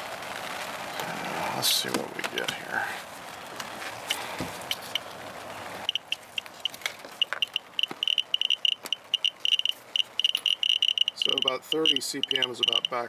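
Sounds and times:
steady hiss: 0.0 - 13.0
geiger counter chirping beeps: 5.9 - 13.0.

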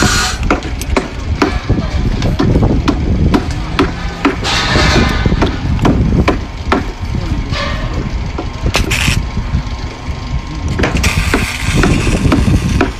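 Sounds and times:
steady low rumble: 0.0 - 12.9.

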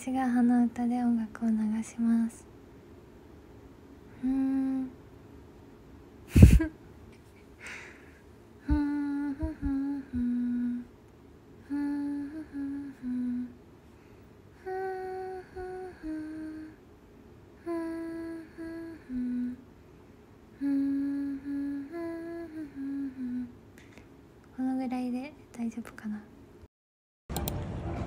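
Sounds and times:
woman humming a tune: 4.1 - 5.0, 8.6 - 10.9, 11.6 - 13.6, 14.6 - 16.8, 17.6 - 19.7, 20.5 - 23.6.

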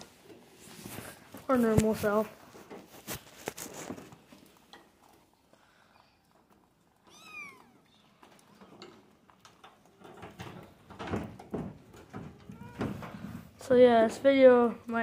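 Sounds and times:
scuffling noises: 0.0 - 4.5
kitten meowing: 7.1 - 7.9.

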